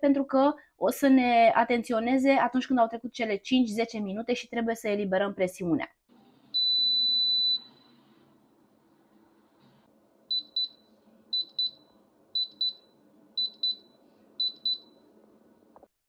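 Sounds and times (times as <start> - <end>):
pressure cooker long beep: 6.6 - 7.9, 10.3 - 11.8, 12.4 - 15.0.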